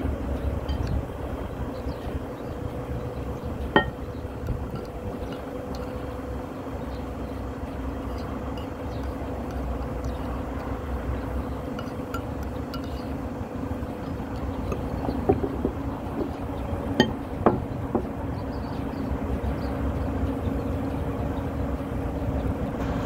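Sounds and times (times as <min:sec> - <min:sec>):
low background rumble and hum: 0:00.0 - 0:23.0
metal spoon clinking ceramic bowls: 0:03.8 - 0:04.0, 0:11.7 - 0:13.2.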